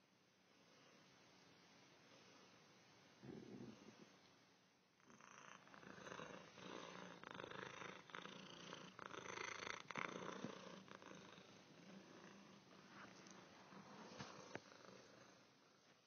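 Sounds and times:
cat purring: 3.2 - 4.4, 5.0 - 16.0.

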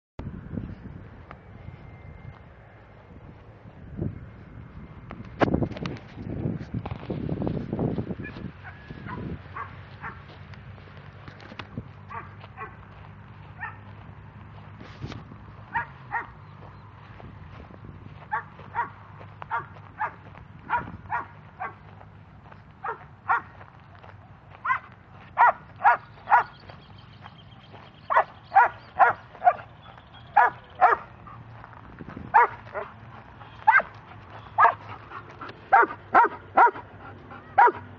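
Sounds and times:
dog barking sharply: 33.7 - 33.9, 35.7 - 36.8, 37.6 - 37.8.

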